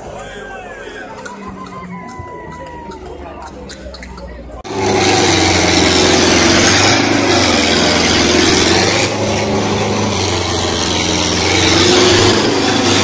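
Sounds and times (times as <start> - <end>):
tractor engine revving: 0.0 - 13.0
wheels spinning in dirt: 0.0 - 13.0.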